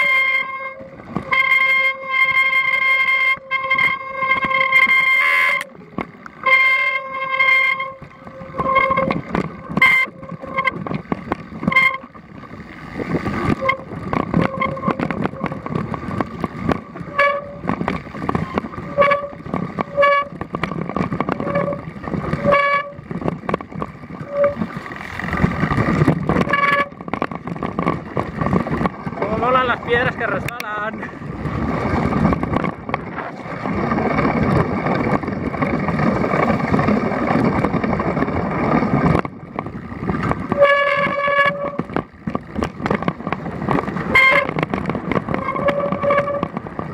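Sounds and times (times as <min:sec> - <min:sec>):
bike rattling on rocky trail: 0:00.0 - 0:46.9.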